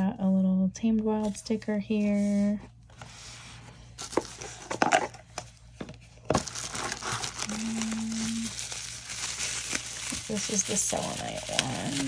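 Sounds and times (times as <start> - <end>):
bubble wrap crinkling: 6.2 - 12.0.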